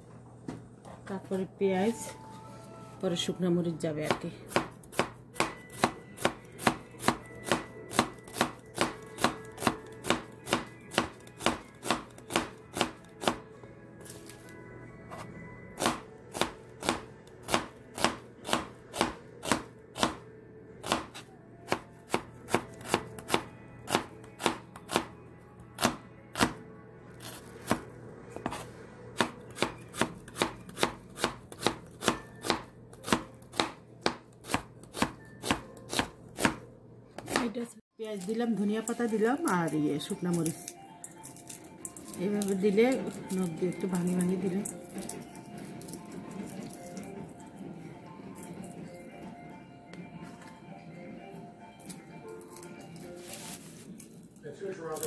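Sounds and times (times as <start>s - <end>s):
knife chopping onion on board: 4.0s - 13.4s, 15.8s - 20.2s, 20.8s - 25.1s, 25.8s - 26.6s, 28.4s - 36.6s, 37.2s - 37.6s.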